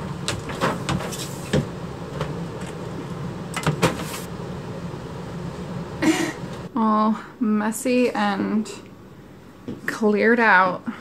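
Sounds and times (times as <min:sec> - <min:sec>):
steady low hum: 0:00.0 - 0:11.0
box knocks and scrapes on metal: 0:00.3 - 0:01.7.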